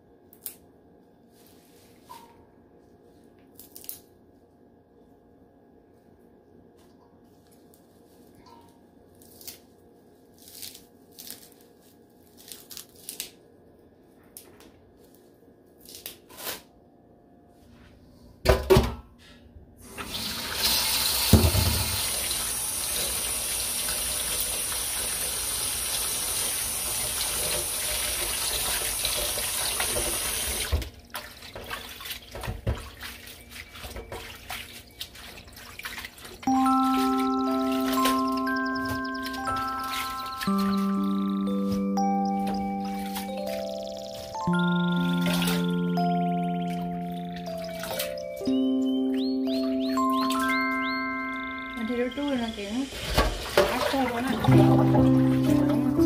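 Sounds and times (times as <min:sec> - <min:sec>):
stems snapping and rustling: 0:03.6 - 0:04.1, 0:09.2 - 0:09.7, 0:10.4 - 0:13.4
tap running into metal bowl: 0:21.1 - 0:22.4
hands splashing wet leaves: 0:31.1 - 0:41.2.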